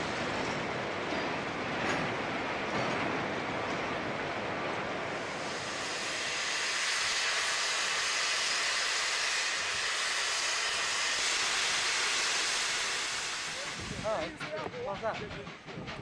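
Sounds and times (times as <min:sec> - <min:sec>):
steam locomotive hissing: 0:04.4 - 0:16.0.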